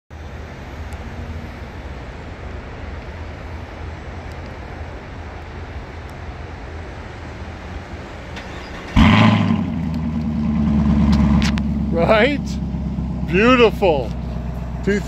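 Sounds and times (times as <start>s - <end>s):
car engine idling: 7.2s - 15.0s.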